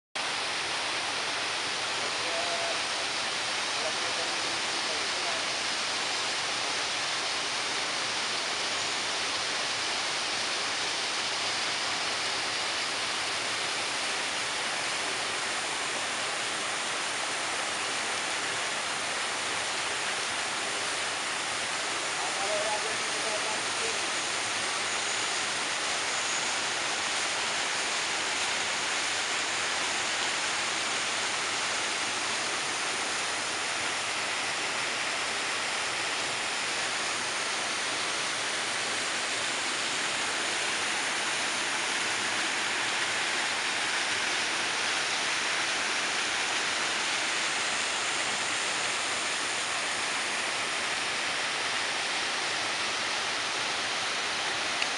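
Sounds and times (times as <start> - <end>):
waterfall splashing over rocks: 0.2 - 54.9.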